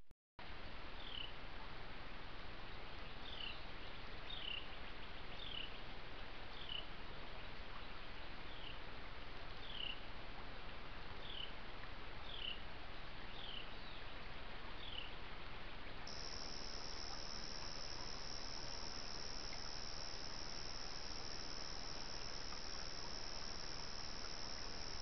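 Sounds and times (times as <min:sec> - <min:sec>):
steady hiss: 0:16.1 - 0:25.0.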